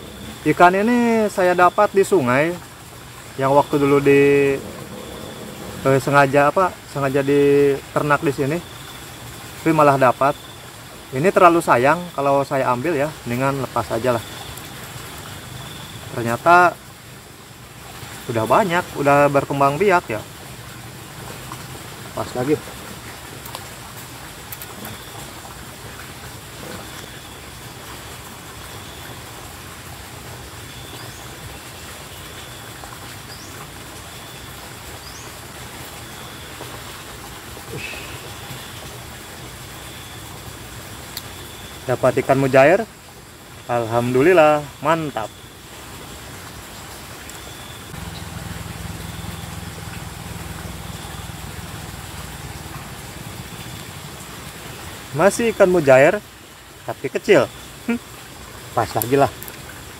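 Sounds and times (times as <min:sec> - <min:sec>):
steady rushing background noise: 0:00.0 - 0:02.4, 0:03.0 - 0:07.4
faint high rising chirps: 0:00.0 - 0:02.6, 0:03.3 - 0:09.1, 0:47.3 - 0:54.4
small engine humming: 0:48.0 - 0:53.8.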